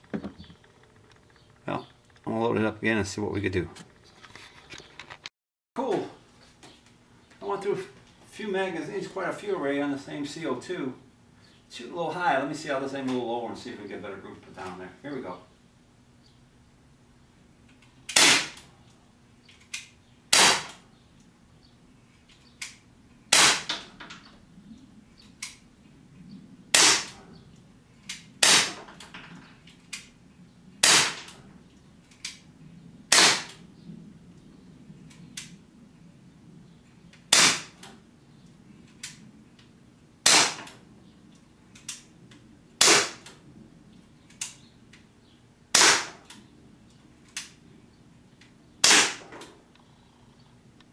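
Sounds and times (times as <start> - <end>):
bb pistol pops: 18.1 - 18.7, 19.7 - 20.8, 22.6 - 23.9, 26.7 - 27.2, 28.1 - 28.8, 30.8 - 31.4, 33.1 - 33.6, 37.3 - 37.9, 40.2 - 40.8, 42.8 - 43.4, 45.7 - 46.4, 48.8 - 49.3.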